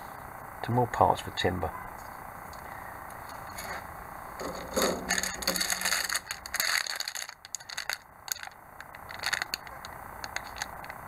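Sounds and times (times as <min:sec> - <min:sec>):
plastic bag crackling: 0:03.4 - 0:10.9
plastic sprues clicking: 0:04.4 - 0:11.0.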